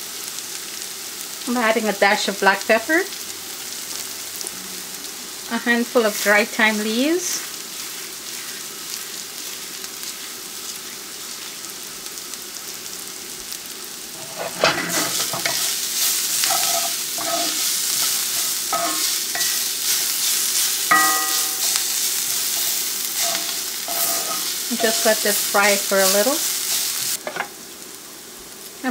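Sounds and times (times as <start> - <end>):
vegetables sizzling in oil: 0.0 - 28.9
spatula scraping and knocking pan: 14.2 - 26.3.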